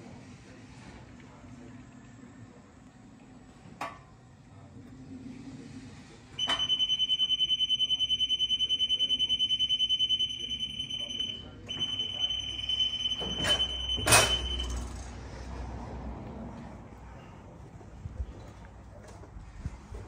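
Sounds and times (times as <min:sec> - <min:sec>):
rapidly pulsing alarm beep: 0:06.4 - 0:14.9
platform clunks: 0:13.0 - 0:14.8.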